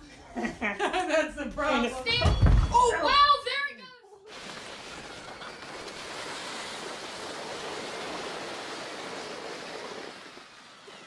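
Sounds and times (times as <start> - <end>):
sleds scraping over ice: 4.3 - 11.0.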